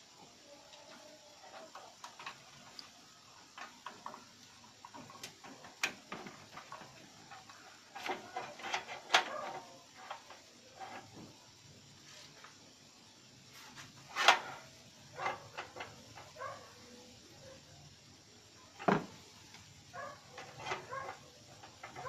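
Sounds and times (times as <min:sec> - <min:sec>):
cable connectors clicking and rattling: 0:00.9 - 0:11.3, 0:14.2 - 0:16.5, 0:20.2 - 0:22.0.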